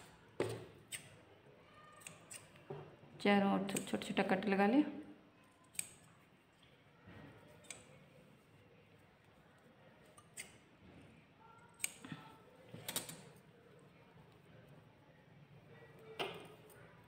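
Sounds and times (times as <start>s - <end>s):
scissors snipping cloth: 2.0s - 2.6s.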